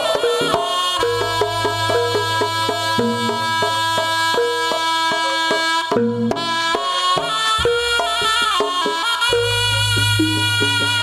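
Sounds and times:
rapid hand drum strokes: 0.0s - 11.0s
reedy melody line: 0.0s - 11.0s
low sustained tone: 1.0s - 4.3s.

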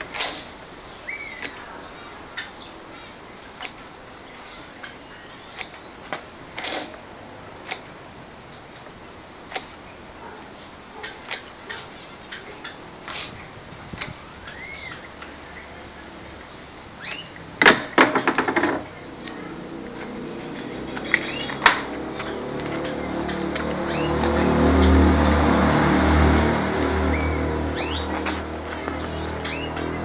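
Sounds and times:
scissors snipping tape: 7.7s - 8.0s, 9.5s - 9.8s.

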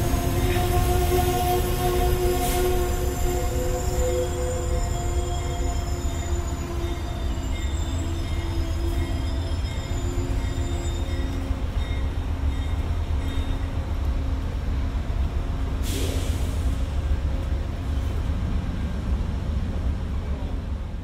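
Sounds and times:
brakes and wheels squealing: 0.0s - 13.8s
train rumbling: 0.0s - 21.0s.

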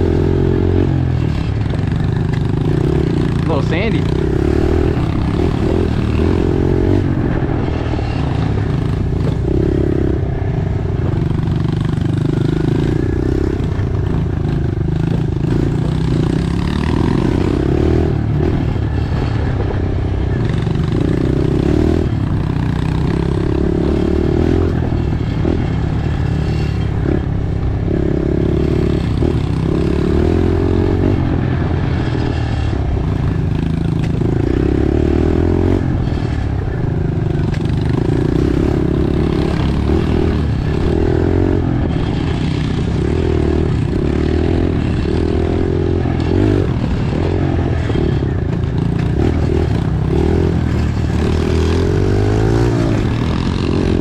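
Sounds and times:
motorbike engine revving: 0.0s - 54.0s.

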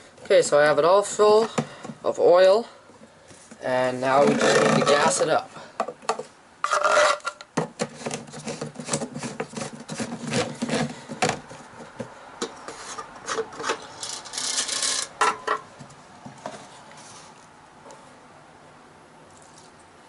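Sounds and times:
plastic rasping scrapes: 4.0s - 5.3s, 6.6s - 11.7s, 12.6s - 15.2s.

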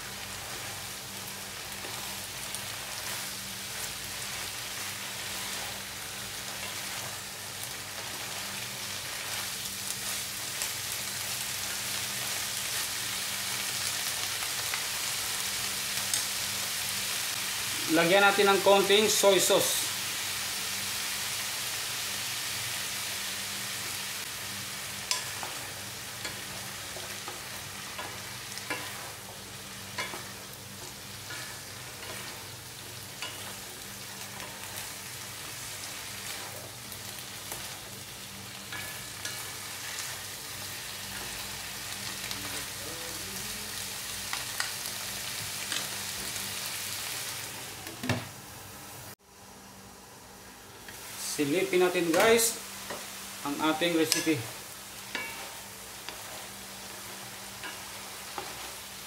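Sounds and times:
meat sizzling in a wok: 0.0s - 59.0s
wooden spatula scraping a pan: 1.6s - 10.7s, 25.1s - 29.4s, 30.0s - 35.6s, 53.8s - 59.0s.

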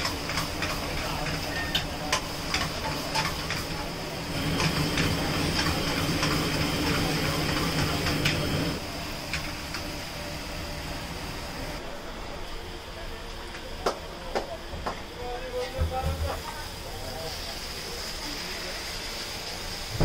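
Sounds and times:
food sizzling: 0.0s - 11.8s, 16.2s - 20.0s
gas flame hiss: 0.0s - 11.8s, 15.8s - 20.0s.

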